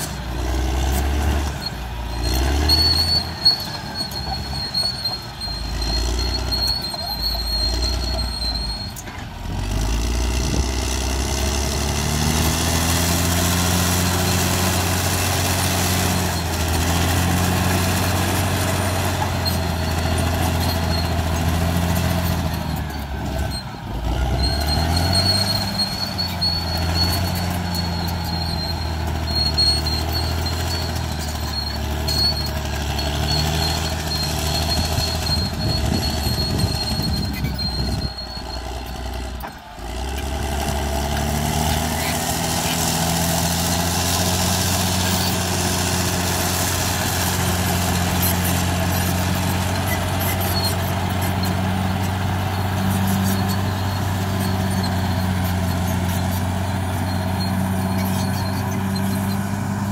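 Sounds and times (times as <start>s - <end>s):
high squeal from running gear: 0.0s - 9.8s, 12.2s - 59.9s
bulldozer diesel engine running: 0.0s - 59.9s.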